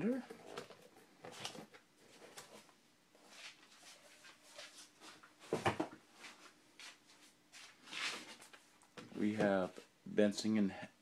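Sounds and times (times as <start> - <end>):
book rustling and knocking: 5.4 - 6.0.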